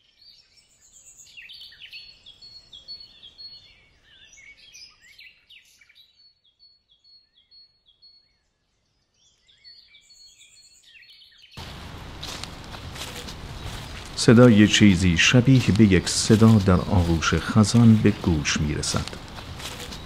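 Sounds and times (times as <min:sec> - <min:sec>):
birds chirping: 0:11.6 - 0:20.0.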